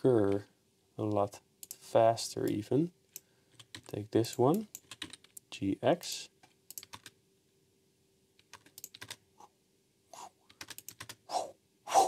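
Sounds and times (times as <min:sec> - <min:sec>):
keyboard keys clicking: 0:04.8 - 0:05.4, 0:06.7 - 0:07.1, 0:08.4 - 0:09.2, 0:10.5 - 0:11.2.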